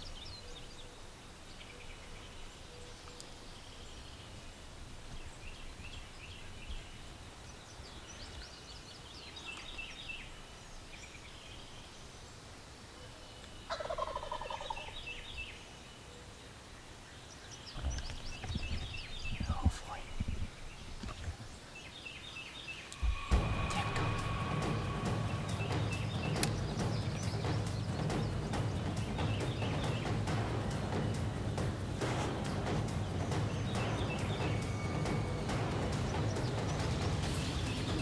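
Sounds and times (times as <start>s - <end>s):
small birds chirping: 0.0s - 38.0s
turkey gobbling: 13.7s - 15.0s.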